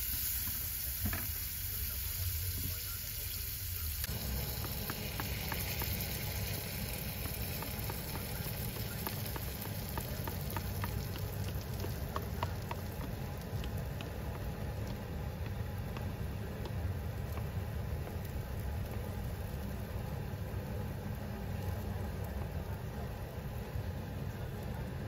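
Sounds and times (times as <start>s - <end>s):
batter sizzling in a frying pan: 0.0s - 25.0s
steady low rumble: 3.8s - 25.0s
small pops and crackles: 4.0s - 19.9s.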